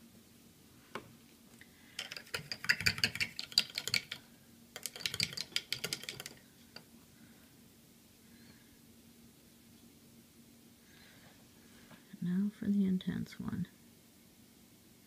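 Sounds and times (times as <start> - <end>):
rapid light clicking and rattling: 1.9 - 6.8.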